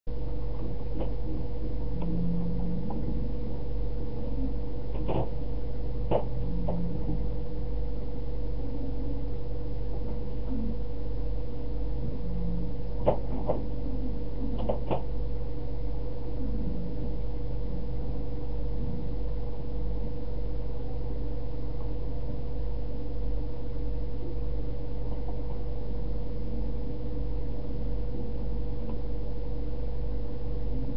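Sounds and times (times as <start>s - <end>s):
low electrical hum with tone: 0.1s - 30.9s.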